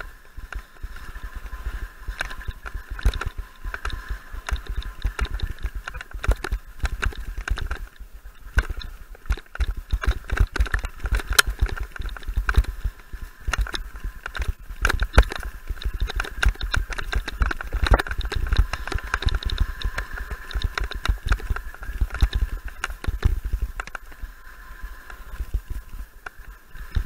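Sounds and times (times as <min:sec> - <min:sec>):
bike rattling over bumps: 0:00.0 - 0:27.0
wind buffeting microphone: 0:00.0 - 0:27.0.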